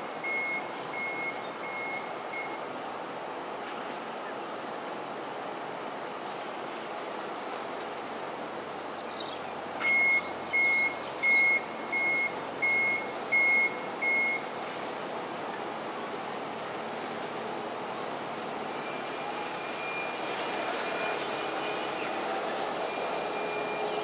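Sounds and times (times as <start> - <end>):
traffic hum: 0.0 - 24.0
reversing alarm beeping: 0.2 - 2.6, 9.8 - 14.5, 18.6 - 22.2, 22.8 - 24.0.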